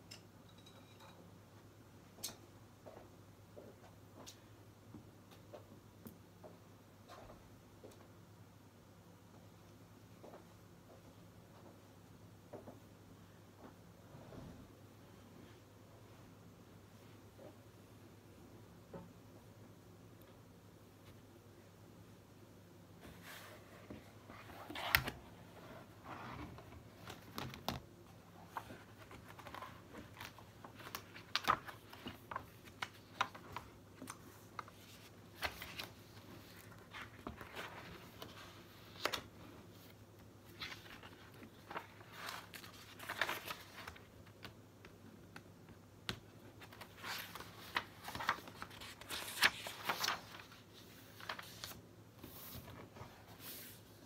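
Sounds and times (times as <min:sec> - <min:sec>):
paper pages rustling: 0:23.0 - 0:27.8, 0:28.4 - 0:44.6, 0:46.5 - 0:54.0.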